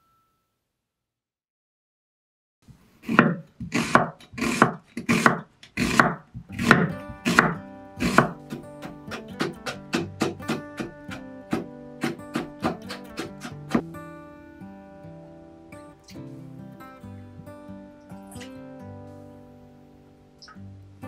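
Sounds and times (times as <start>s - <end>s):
knife cutting carrot into strips: 3.0s - 13.8s
knife slicing onion on wooden board: 3.0s - 13.8s.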